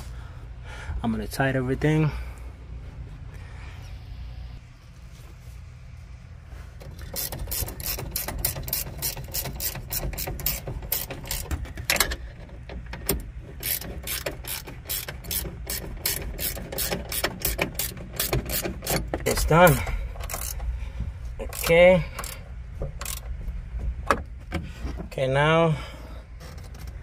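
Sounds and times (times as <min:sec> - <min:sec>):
ratchet wrench clicking: 0:06.9 - 0:12.3, 0:13.1 - 0:20.7, 0:21.4 - 0:22.4, 0:23.0 - 0:23.3.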